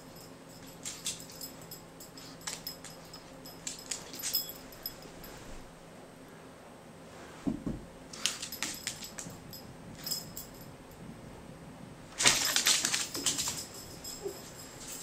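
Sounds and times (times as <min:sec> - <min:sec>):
metal collar tag jangling: 0:00.0 - 0:05.2, 0:08.2 - 0:10.7, 0:12.2 - 0:15.0.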